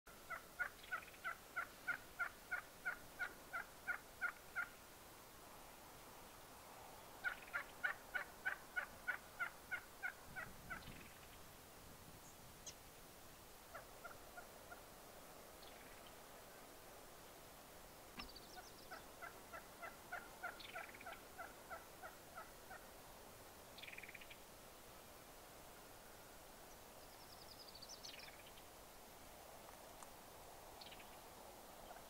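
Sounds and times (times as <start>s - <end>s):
turkey call notes: 0.3s - 4.7s, 7.2s - 10.9s, 13.7s - 14.8s, 18.2s - 22.9s.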